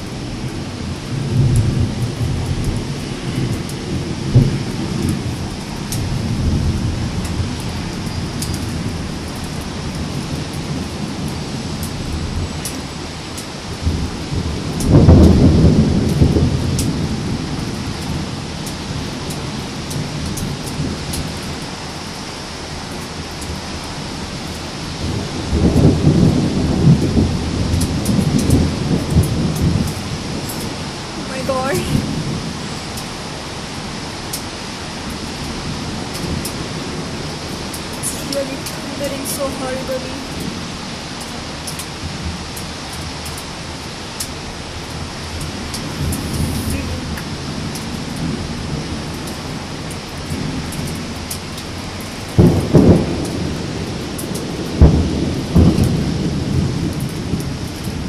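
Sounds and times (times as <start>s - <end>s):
steady rain: 0.0s - 58.0s
thunder rumbling: 0.0s - 58.0s
sharp thunder clap: 1.2s - 7.6s, 13.8s - 19.1s, 25.0s - 32.5s, 52.3s - 58.0s.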